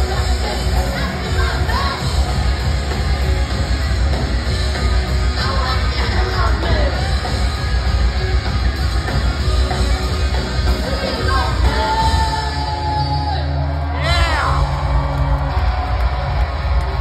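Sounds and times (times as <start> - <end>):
punk rock band playing: 0.0 - 17.0
woman singing and yelling: 0.1 - 2.3, 5.4 - 7.0, 10.9 - 13.3.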